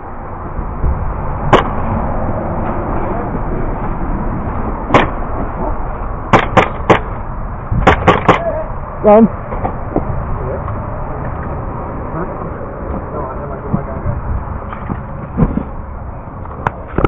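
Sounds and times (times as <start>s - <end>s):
airsoft gun shots: 4.9s - 5.2s, 6.3s - 7.1s, 7.8s - 8.5s.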